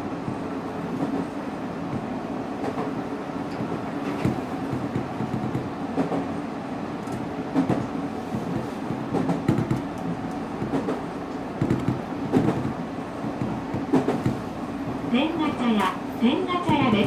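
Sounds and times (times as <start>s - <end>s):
electric train hum: 0.0s - 17.0s.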